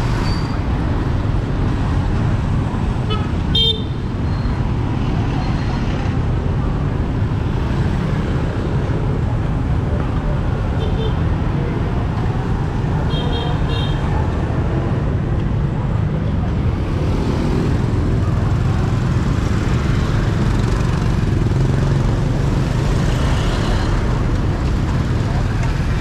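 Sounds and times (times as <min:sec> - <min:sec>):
motorbike and car traffic: 0:00.0 - 0:26.0.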